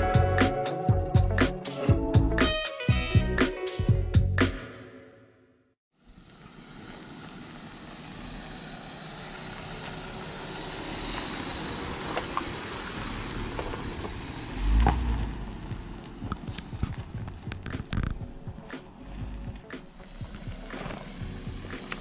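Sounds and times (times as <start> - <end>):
vehicle engine: 5.9 - 22.0
tyres on gravel: 6.1 - 22.0.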